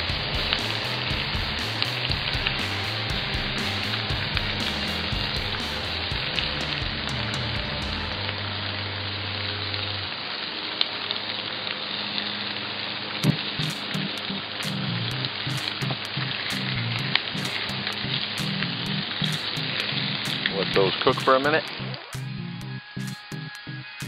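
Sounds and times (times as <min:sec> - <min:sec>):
meat sizzling on griddle: 0:00.0 - 0:06.9
background music with bass: 0:00.0 - 0:10.1, 0:13.2 - 0:24.0.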